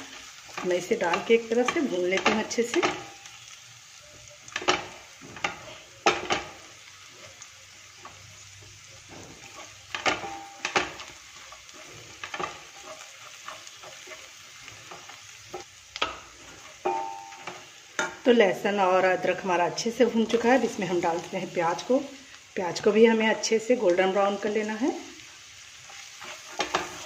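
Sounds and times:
spices sizzling in oil: 0:00.0 - 0:27.0
spatula scraping and knocking on pan: 0:00.5 - 0:03.2, 0:04.5 - 0:06.7, 0:08.0 - 0:18.2, 0:25.9 - 0:27.0.

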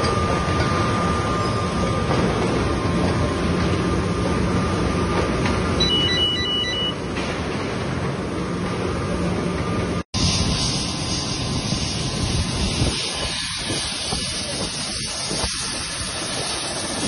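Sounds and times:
conveyor machinery rumbling: 0:00.0 - 0:17.0
quick electronic beeps: 0:05.8 - 0:07.1
bright hiss: 0:10.2 - 0:17.0.

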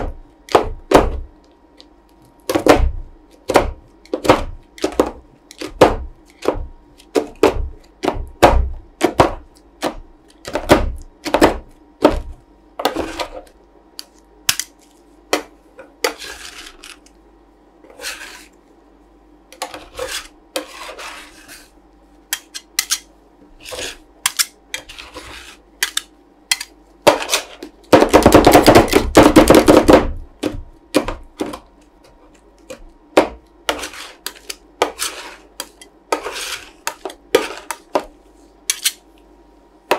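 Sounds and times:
spatulas chopping on metal plate: 0:00.0 - 0:01.3, 0:02.5 - 0:13.5, 0:14.5 - 0:16.9, 0:22.3 - 0:39.0.

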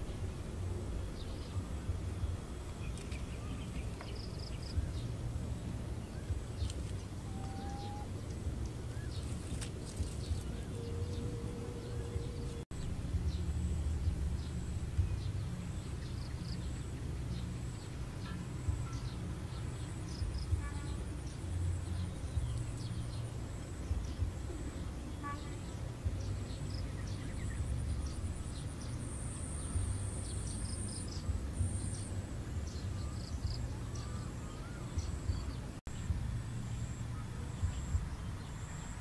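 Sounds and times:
low rumble: 0:00.0 - 0:39.0
faint bird chirps: 0:06.2 - 0:08.2.

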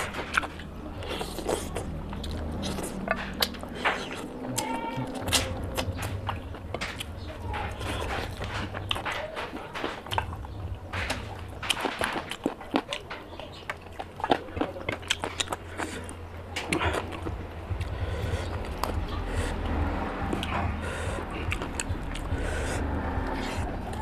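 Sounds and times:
wet chewing and mouth clicks: 0:00.0 - 0:24.0
low steady hum: 0:13.1 - 0:24.0.

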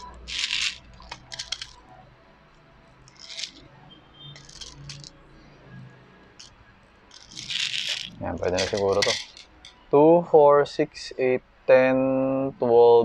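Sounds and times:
pellets clicking into magazine: 0:00.0 - 0:01.8, 0:03.1 - 0:03.6, 0:04.4 - 0:05.1, 0:07.1 - 0:09.8.

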